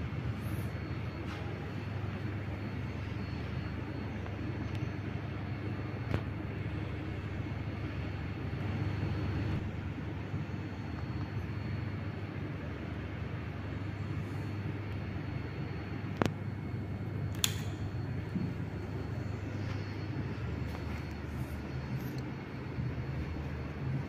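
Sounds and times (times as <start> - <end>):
ceiling fan humming: 0.0 - 24.0
sharp clicks: 17.3 - 17.8.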